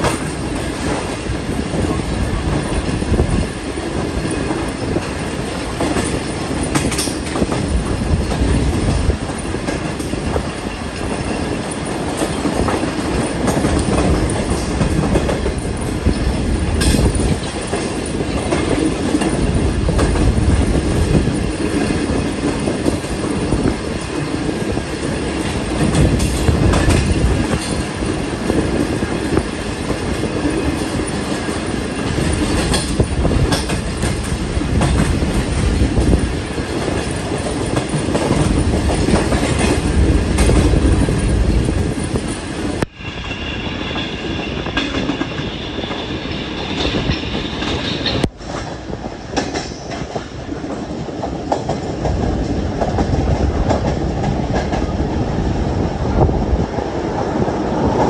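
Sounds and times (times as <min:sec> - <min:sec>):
wheels clicking over rail joints: 0:00.0 - 0:42.9
train rumbling: 0:00.0 - 0:58.0.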